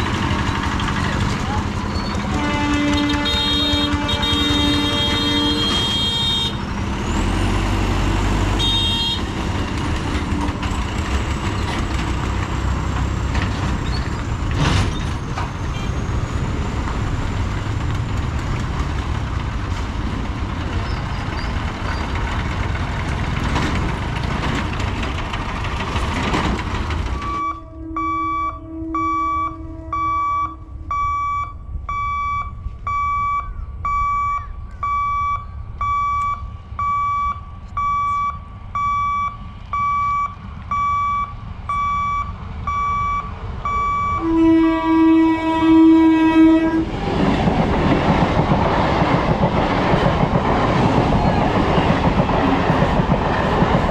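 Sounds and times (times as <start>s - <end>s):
vehicle engines and tyres rolling: 0.0s - 53.9s
car horn tooting: 2.2s - 6.6s, 8.6s - 9.3s, 44.2s - 46.9s
level crossing warning beeps: 27.2s - 44.3s.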